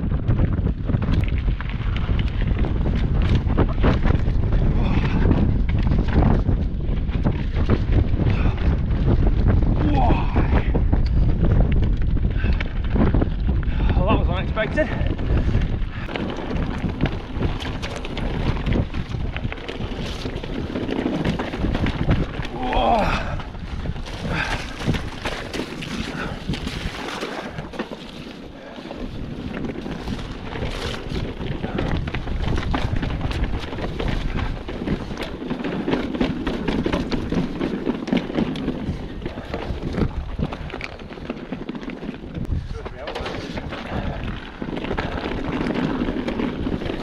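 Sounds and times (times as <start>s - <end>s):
bike rolling over rocks: 0.0s - 47.0s
knocks and rattles of bike: 0.0s - 47.0s
wind buffeting microphone: 0.0s - 47.0s
tyres crunching over gravel: 11.4s - 47.0s.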